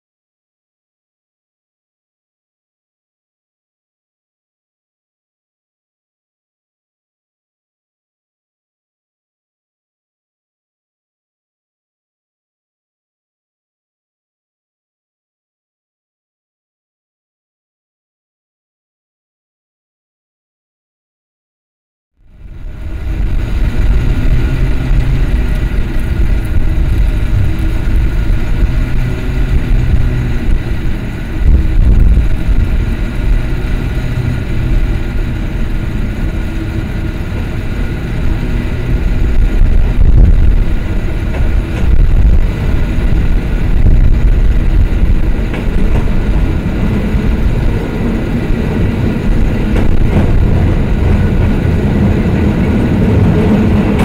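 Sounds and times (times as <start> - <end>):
cable car rumbling: 22.2 - 54.0.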